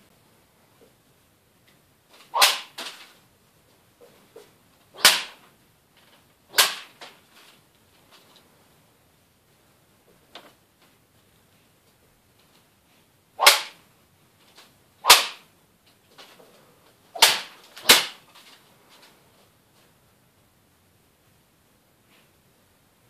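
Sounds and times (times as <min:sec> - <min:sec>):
sword swishing through paper: 0:02.2 - 0:03.2, 0:06.5 - 0:07.6, 0:17.2 - 0:18.6.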